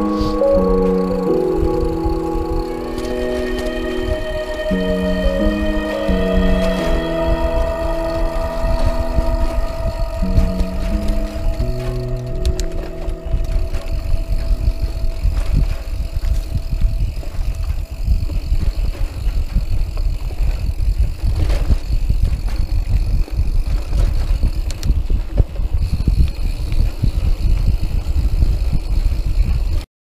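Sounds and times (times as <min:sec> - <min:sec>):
wind rumble on microphone: 0:01.6 - 0:29.8
bike rattling and knocking: 0:11.6 - 0:29.8.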